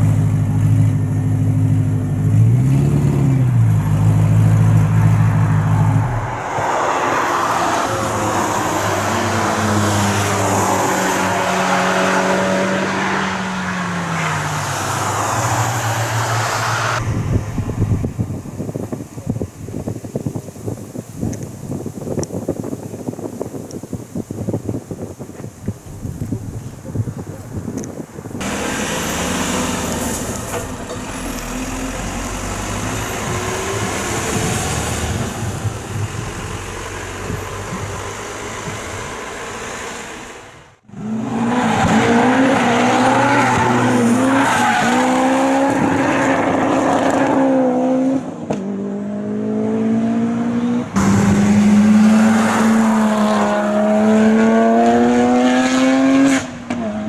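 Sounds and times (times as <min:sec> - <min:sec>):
car engines at high revs: 0:27.7 - 0:57.0
car accelerating hard: 0:28.4 - 0:57.0.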